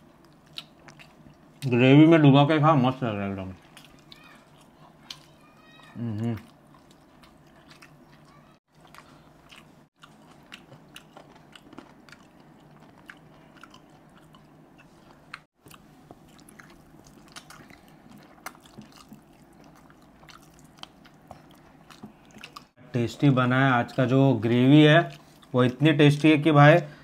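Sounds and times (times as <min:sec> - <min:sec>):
biting and chewing: 0:03.6 - 0:22.8.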